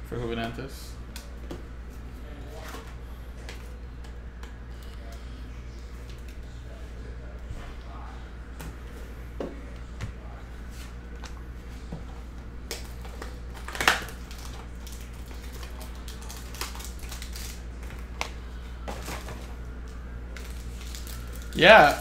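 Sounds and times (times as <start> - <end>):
steady low hum: 0.0 - 22.0
plastic crinkling: 12.7 - 18.3, 20.4 - 22.0.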